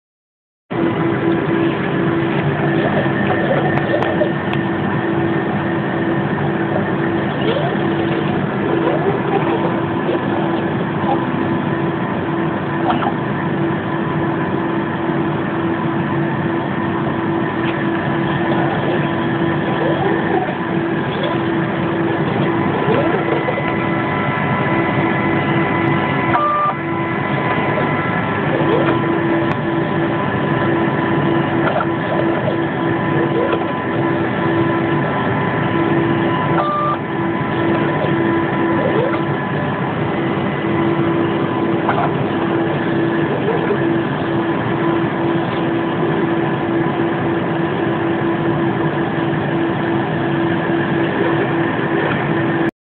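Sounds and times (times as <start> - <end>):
cooling fans whirring: 0.7 - 52.7
laboratory instruments humming: 0.7 - 52.7
brief beep: 26.3 - 26.8, 36.6 - 37.0.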